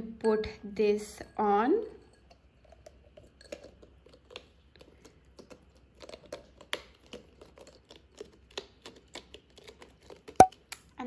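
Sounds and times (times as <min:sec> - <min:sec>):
small clicks and scrapes: 0:02.6 - 0:11.0.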